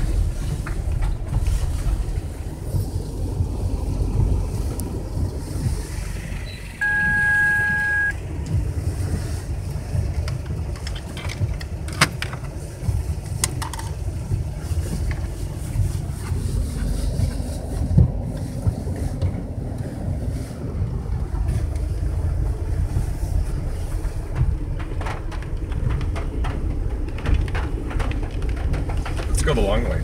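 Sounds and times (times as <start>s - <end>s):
vehicle rumbling over gravel: 0.0s - 30.0s
electronic beep: 6.4s - 8.2s.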